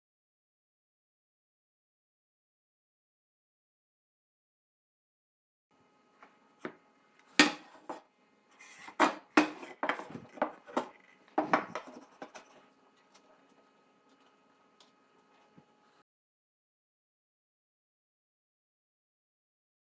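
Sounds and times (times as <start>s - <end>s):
wood scraping on wood: 7.6s - 14.2s.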